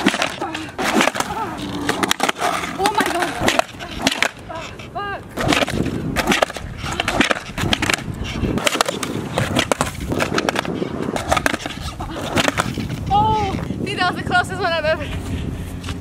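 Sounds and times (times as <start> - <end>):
skateboard deck clacks: 0.0 - 4.8, 5.4 - 13.0
skateboard wheels rolling on asphalt: 0.0 - 16.0.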